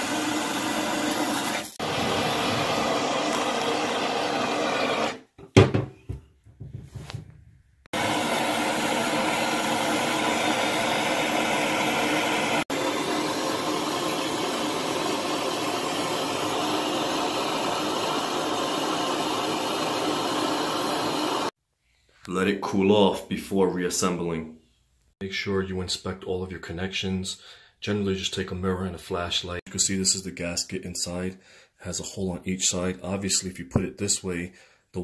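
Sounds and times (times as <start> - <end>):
gas torch hissing: 0.0 - 5.3, 7.9 - 21.6.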